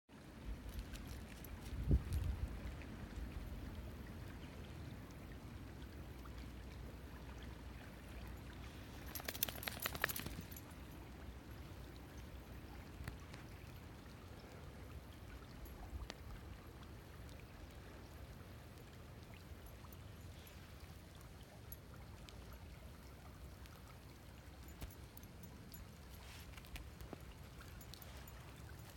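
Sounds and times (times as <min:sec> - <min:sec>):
crackly rustle: 0:08.7 - 0:10.7, 0:26.1 - 0:28.9.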